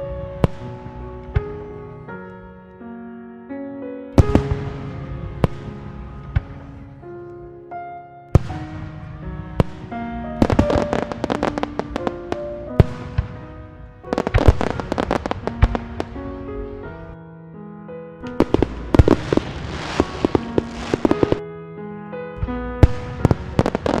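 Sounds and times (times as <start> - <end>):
fireworks crackling bangs: 0.0 - 1.7, 4.2 - 6.9, 8.3 - 17.0, 18.2 - 21.4, 22.4 - 24.0
background music: 0.0 - 24.0.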